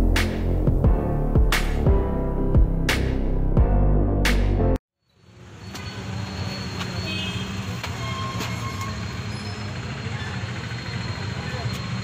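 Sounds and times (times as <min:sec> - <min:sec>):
background music: 0:00.0 - 0:04.8
street traffic noise: 0:05.0 - 0:12.0.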